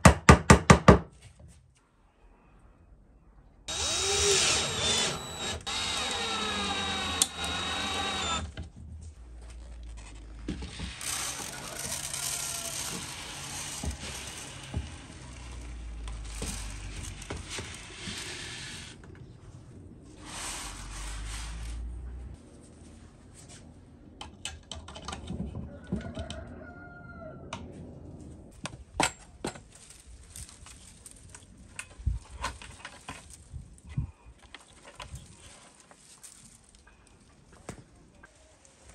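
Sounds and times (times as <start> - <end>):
cordless drill motor whine: 3.7 - 8.5, 10.7 - 14.5
drill click: 3.7 - 8.6, 10.8 - 14.5.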